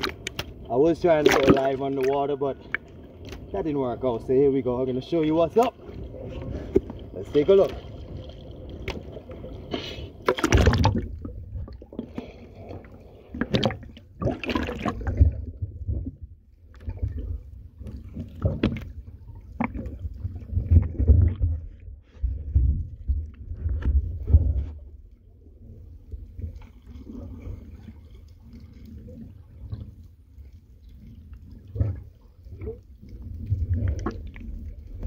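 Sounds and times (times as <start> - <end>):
water splashing on microphone: 0.0 - 16.2
low underwater rumbling: 0.0 - 35.0
muffled underwater sloshing: 0.0 - 35.0.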